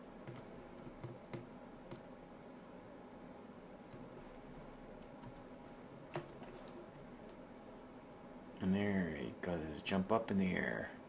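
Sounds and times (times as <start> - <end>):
faint steady hiss: 0.0 - 11.0.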